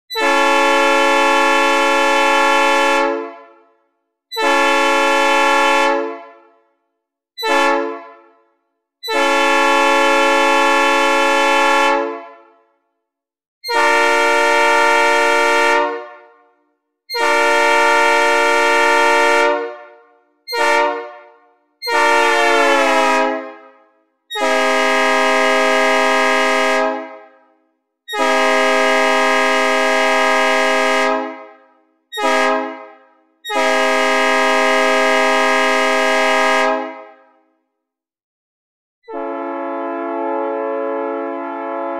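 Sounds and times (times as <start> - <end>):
synthesized train horn blasts: 0.1 - 6.8, 7.4 - 12.8, 13.6 - 37.4, 39.1 - 41.9.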